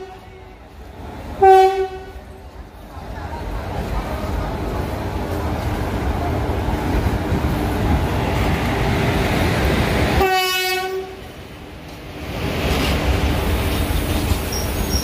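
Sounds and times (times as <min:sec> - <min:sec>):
train horn blast: 0:00.0 - 0:00.5, 0:01.4 - 0:02.2, 0:10.2 - 0:11.2
train rumbling and clattering: 0:00.0 - 0:15.0.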